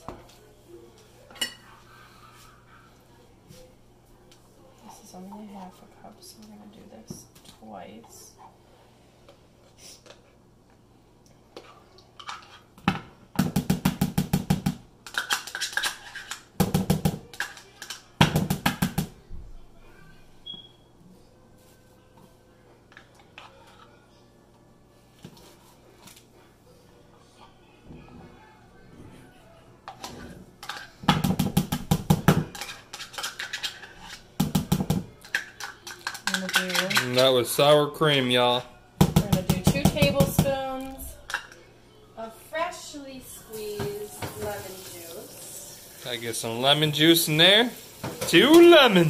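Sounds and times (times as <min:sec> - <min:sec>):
rapid tapping on plastic bowl: 0:16.6 - 0:19.2, 0:31.1 - 0:32.6, 0:39.0 - 0:40.5.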